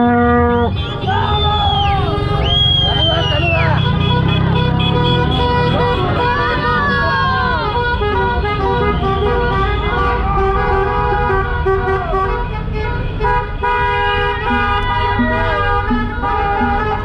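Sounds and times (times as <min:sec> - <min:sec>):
car horns honking: 0:00.0 - 0:17.0
traffic rumble: 0:00.0 - 0:17.0.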